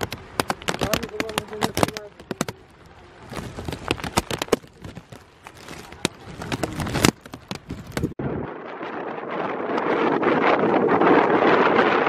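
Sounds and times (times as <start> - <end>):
footsteps on gravel: 0.0 - 8.2.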